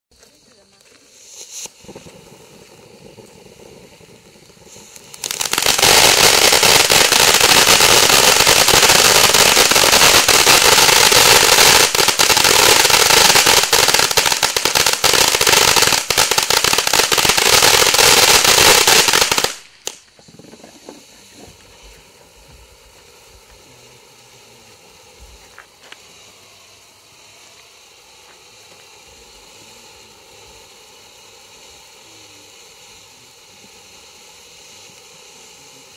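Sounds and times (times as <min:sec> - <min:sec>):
firework crackling: 0:00.1 - 0:35.9
firework fountain hissing: 0:00.1 - 0:35.9
scattered pops: 0:00.2 - 0:23.6.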